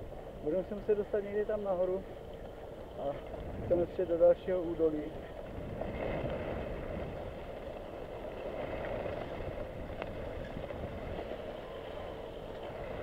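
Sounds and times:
skis scraping over snow: 0.0s - 13.0s
wind noise on microphone: 2.9s - 13.0s.

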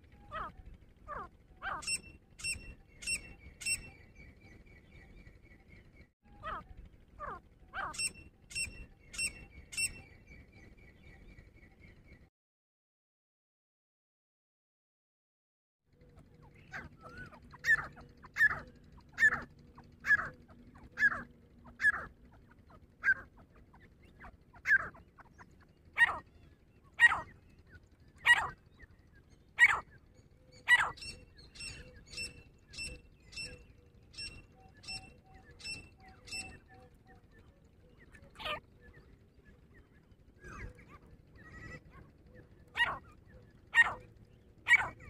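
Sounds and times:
francolin harsh repeated calls: 26.0s - 26.3s, 27.0s - 27.4s, 28.2s - 28.6s, 29.6s - 29.9s, 30.7s - 33.5s, 43.7s - 44.0s.

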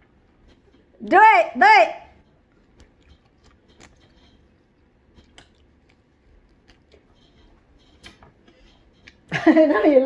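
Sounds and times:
person chewing juicy fruit: 2.2s - 9.3s.

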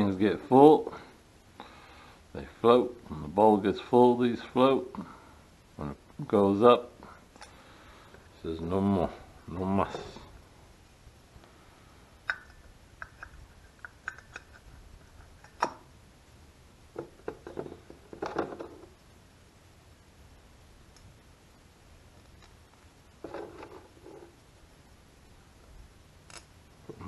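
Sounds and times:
small parts clicking and tapping: 12.2s - 15.8s.

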